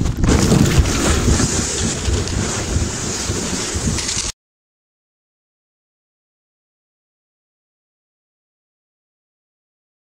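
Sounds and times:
kayak scraping over snow: 0.0s - 4.3s
wind buffeting microphone: 0.0s - 4.3s.

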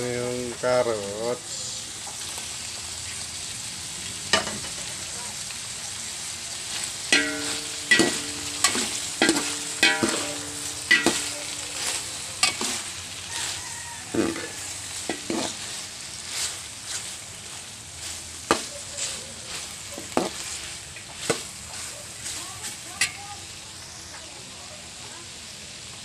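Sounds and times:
food sizzling: 0.0s - 26.0s
metal spoon knocking on pot: 7.1s - 12.8s.

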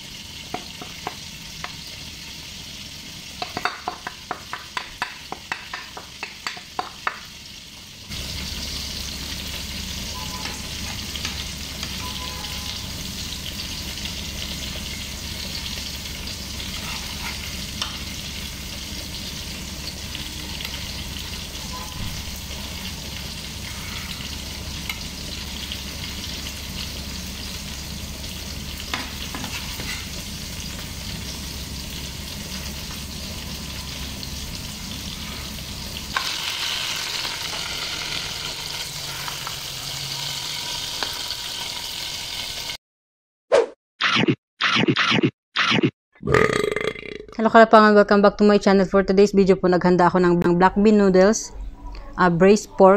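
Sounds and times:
oil sizzling in a frying pan: 0.0s - 42.8s
spoon scraping a bowl: 16.7s - 17.7s.

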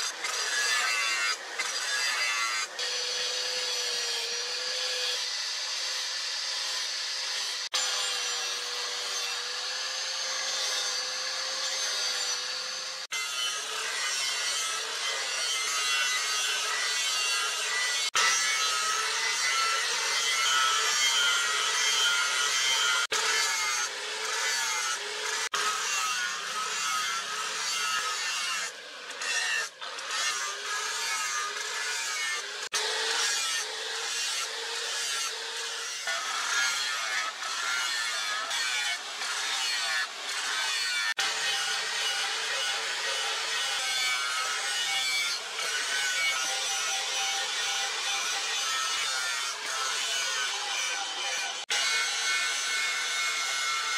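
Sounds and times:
angle grinder grinding steel: 0.0s - 53.9s.

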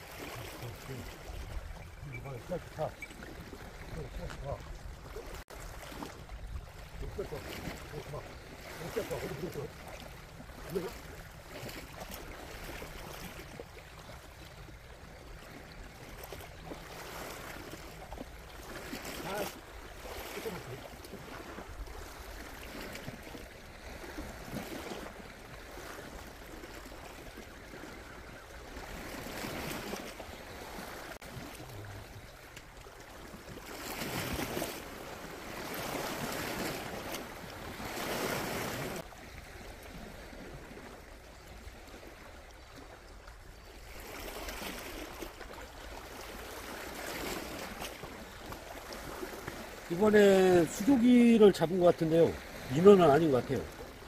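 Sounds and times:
sea waves washing against rocks: 0.0s - 11.5s, 16.2s - 23.2s, 45.0s - 53.9s.

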